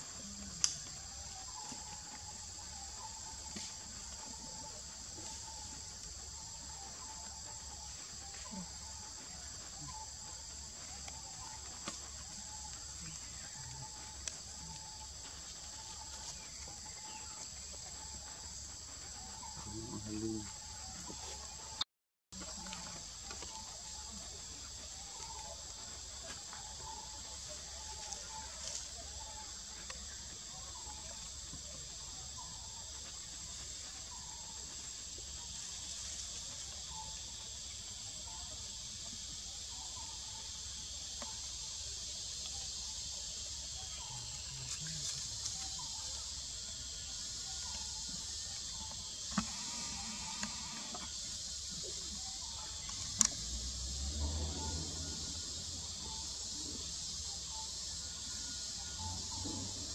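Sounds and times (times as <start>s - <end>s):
insects buzzing: 0.0s - 21.8s, 22.4s - 59.9s.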